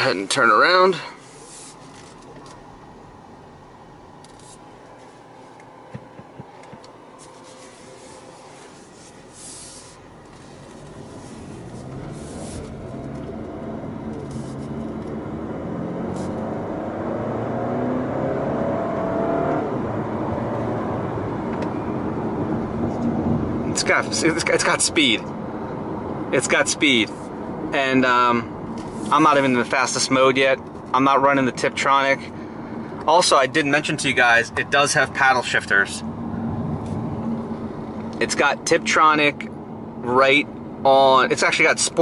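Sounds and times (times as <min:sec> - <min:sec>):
car engine accelerating: 0:09.6 - 0:30.9, 0:33.8 - 0:41.2.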